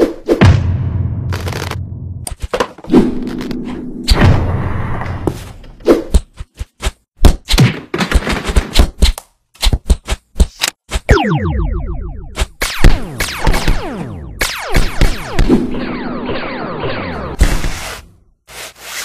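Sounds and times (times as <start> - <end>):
cartoon thuds and whacks: 0.0 - 2.7, 7.2 - 15.8
falling zap: 11.1 - 17.4
sharp hits and shots: 11.1 - 17.4.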